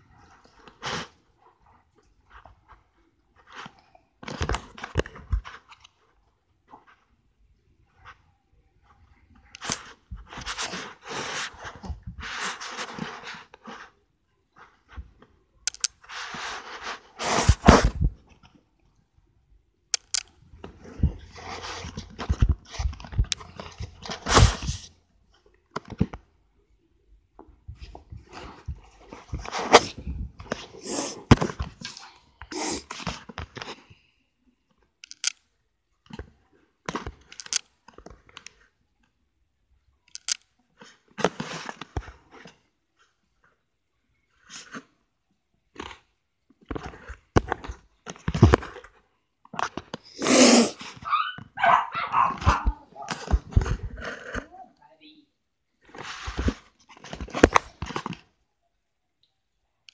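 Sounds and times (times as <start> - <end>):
breathy rustling on microphone: 27.7 - 34.3.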